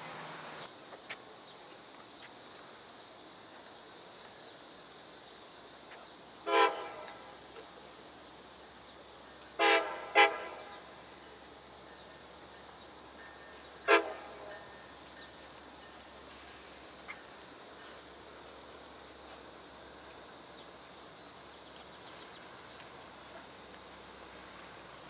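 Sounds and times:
locomotive air horn blasts: 6.4s - 7.3s, 9.5s - 10.9s, 13.8s - 14.7s.

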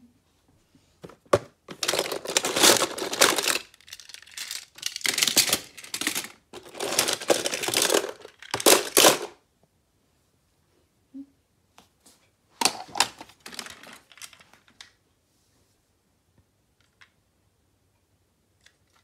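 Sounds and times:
toy cars clattering in plastic bin: 1.3s - 9.4s, 12.6s - 14.5s.

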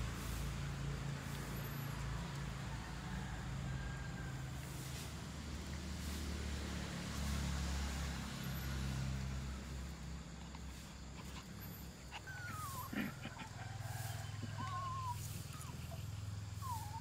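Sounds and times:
puppies play-fighting: 10.2s - 17.0s
puppy whining: 11.0s - 17.0s.

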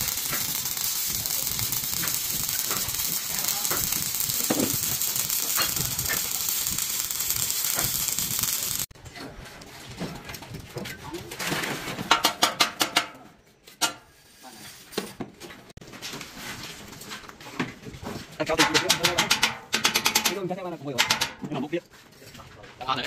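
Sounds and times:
arc welding crackling hiss: 0.0s - 8.9s.

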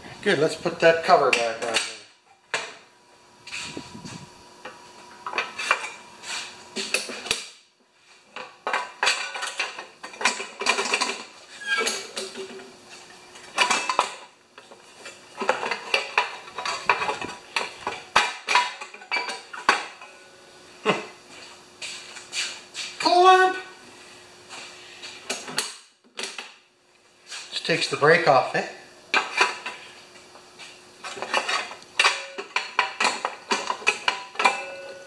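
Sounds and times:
engine cover clattering and scraping: 31.0s - 34.7s.

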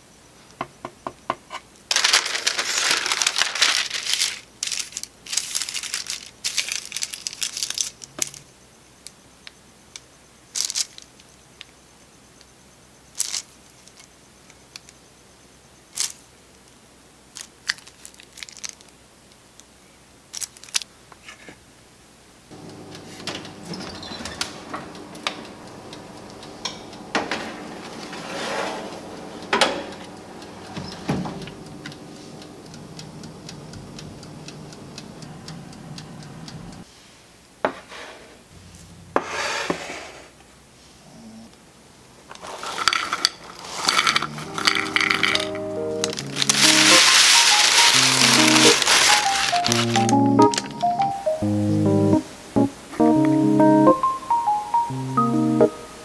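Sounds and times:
oven humming: 22.5s - 36.9s, 42.4s - 56.0s
metal tray clattering on oven rack: 26.7s - 31.5s.

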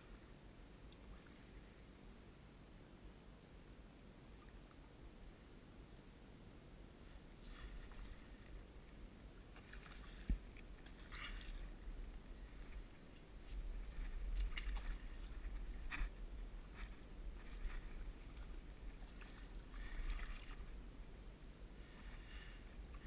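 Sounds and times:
low rumble: 7.0s - 23.0s.

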